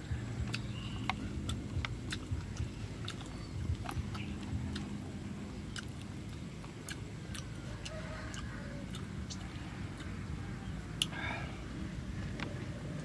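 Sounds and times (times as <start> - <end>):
man chewing food: 0.0 - 13.0
steady low rumble: 0.0 - 13.0
wet mouth clicks: 0.4 - 10.2, 11.0 - 11.2.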